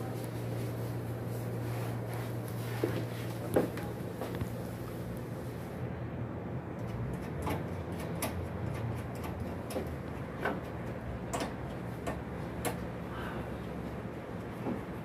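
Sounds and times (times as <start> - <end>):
steady low hum: 0.0 - 15.0
hands clicking on air-conditioner: 6.8 - 13.0.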